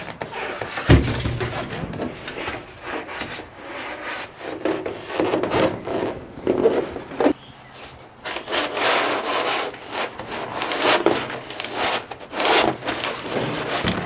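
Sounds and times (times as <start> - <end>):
foam board scraping steel ceiling: 0.0 - 14.0
dull thump: 0.8 - 3.4, 13.7 - 14.0.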